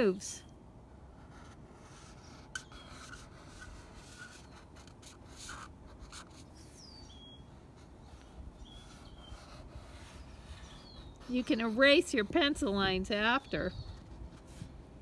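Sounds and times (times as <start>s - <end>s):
marker rubbing across paper: 1.2s - 12.9s
faint bird chirping: 2.0s - 3.4s, 6.1s - 14.2s.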